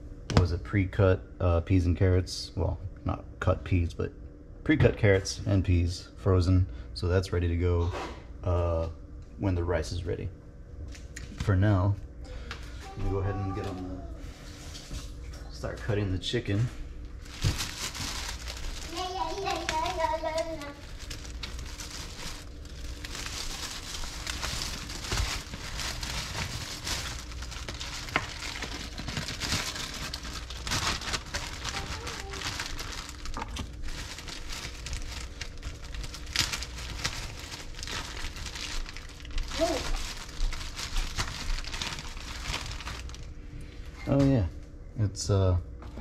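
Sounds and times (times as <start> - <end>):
rustling and crinkling: 12.6 - 15.9, 16.7 - 44.2.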